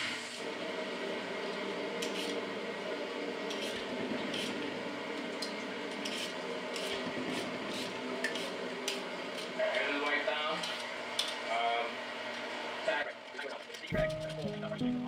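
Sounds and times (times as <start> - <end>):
vegetable peeler rasping: 6.0 - 8.6.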